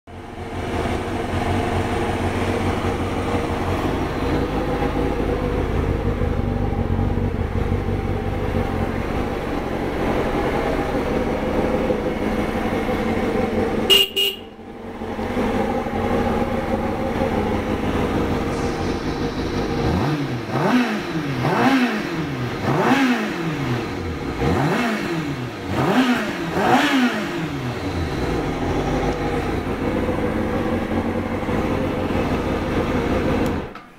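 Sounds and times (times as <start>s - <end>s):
motorcycle engine idling and revving: 0.1s - 33.9s
horn beep: 13.9s - 14.6s.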